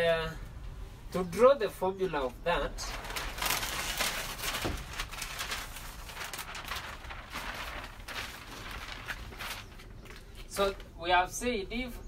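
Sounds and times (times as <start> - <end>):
paper sheets rustling: 2.8 - 10.8.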